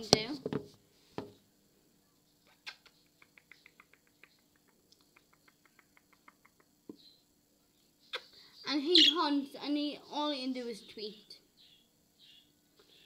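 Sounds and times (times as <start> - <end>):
budgerigar clicking: 2.5 - 7.0.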